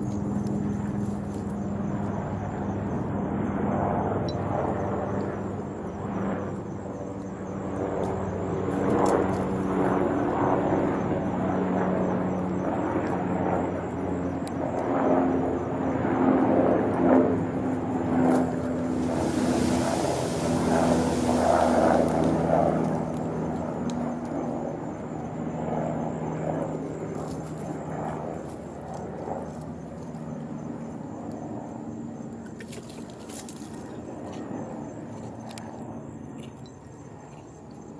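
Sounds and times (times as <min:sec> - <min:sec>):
steady engine drone: 0:00.0 - 0:36.9
hiss: 0:19.0 - 0:22.0.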